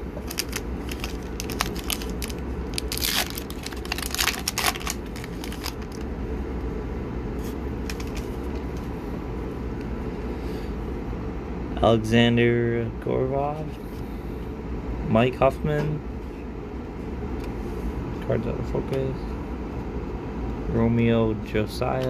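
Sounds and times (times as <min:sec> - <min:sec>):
low hum: 0:00.0 - 0:21.7
foil wrapper crinkling: 0:00.2 - 0:06.0, 0:07.4 - 0:08.6.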